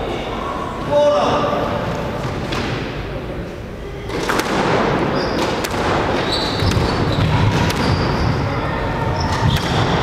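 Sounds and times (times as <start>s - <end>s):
squash ball hit by rackets: 4.1s - 8.2s, 9.3s - 10.0s
shoes squeaking on hardwood floor: 6.2s - 10.0s.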